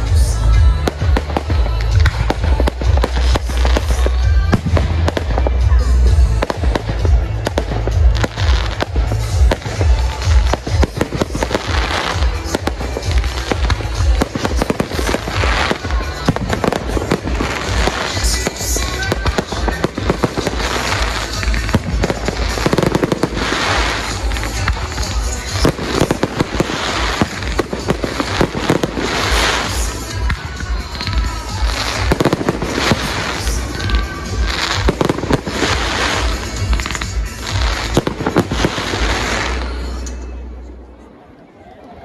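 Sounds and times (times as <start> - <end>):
firework crackling: 0.0 - 40.2
music: 0.0 - 41.2.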